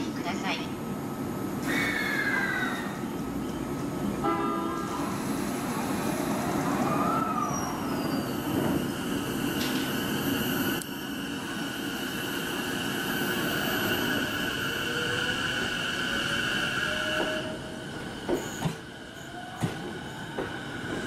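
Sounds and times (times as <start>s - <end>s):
electric train humming: 0.0s - 21.0s
train motor whine: 6.6s - 21.0s.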